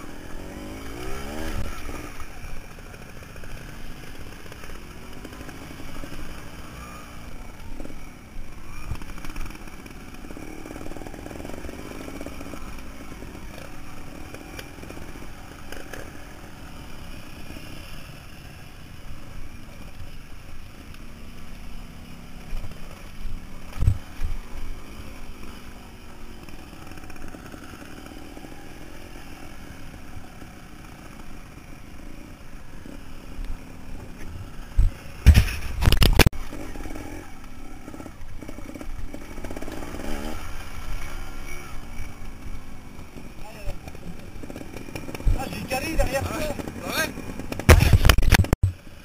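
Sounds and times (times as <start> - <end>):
motorcycle engine revving: 0.0 - 49.0
motorcycle jolting over rocks: 34.8 - 36.8, 43.6 - 48.8.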